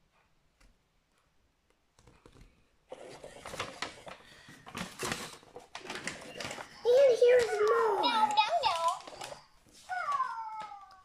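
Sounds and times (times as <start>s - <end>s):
paper sheet rustling and crackling: 2.9s - 11.0s.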